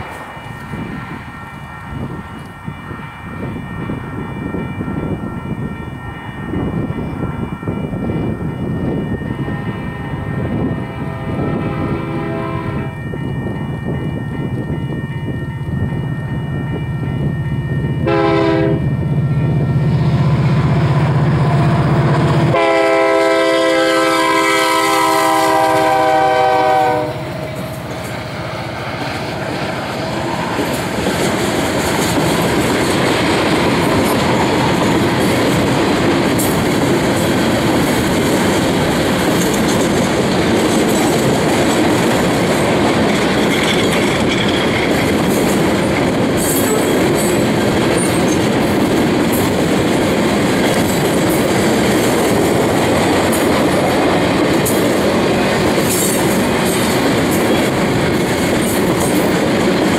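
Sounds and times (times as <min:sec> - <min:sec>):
diesel locomotive engine drone: 0:00.0 - 0:59.9
train horn blasts: 0:09.4 - 0:13.1, 0:18.0 - 0:19.4, 0:20.2 - 0:28.7.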